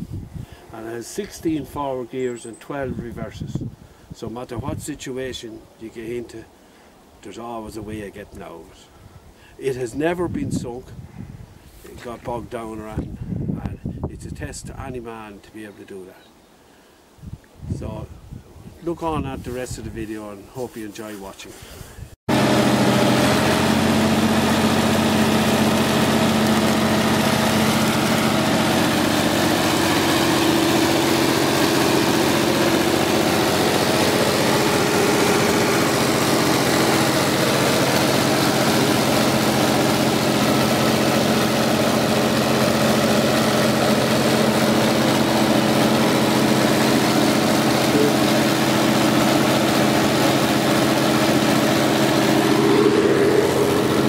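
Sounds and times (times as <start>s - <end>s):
diesel engine running steadily: 22.3s - 54.0s.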